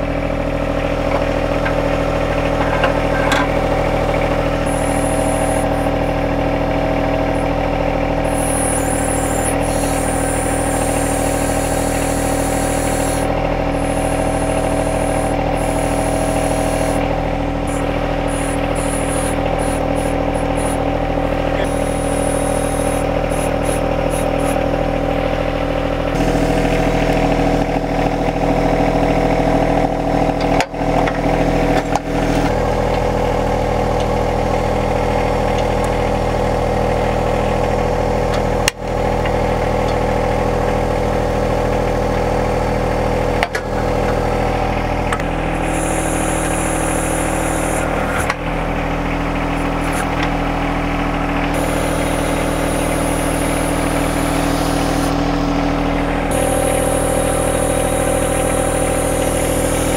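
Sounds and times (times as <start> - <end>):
tractor diesel engine running: 0.0 - 59.9
thin high whine: 4.6 - 6.1, 8.2 - 17.0, 17.6 - 20.8, 21.5 - 24.6, 45.6 - 48.3, 51.6 - 55.4, 56.2 - 59.9.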